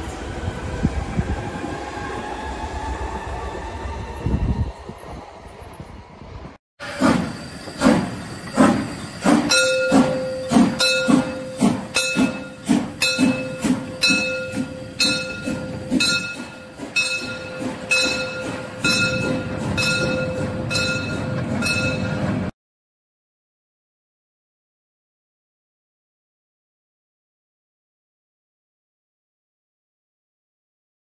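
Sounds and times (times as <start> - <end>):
steam locomotive chuffing: 6.8 - 22.5.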